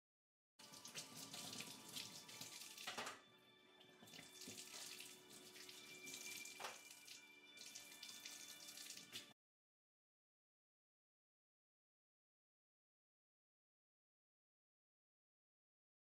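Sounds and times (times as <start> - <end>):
tap running into sink: 0.8 - 3.2, 6.4 - 7.0.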